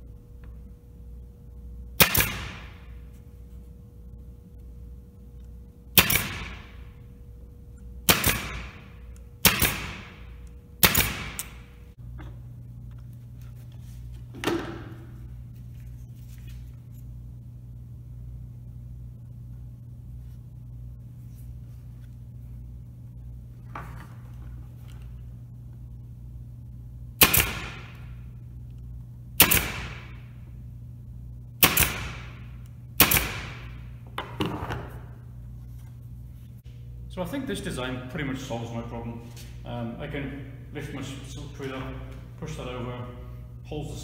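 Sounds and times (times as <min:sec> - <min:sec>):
brad nailer firing: 0:02.0 - 0:03.0, 0:05.9 - 0:06.9, 0:08.0 - 0:11.8, 0:27.2 - 0:28.2, 0:29.4 - 0:30.3, 0:31.6 - 0:34.9.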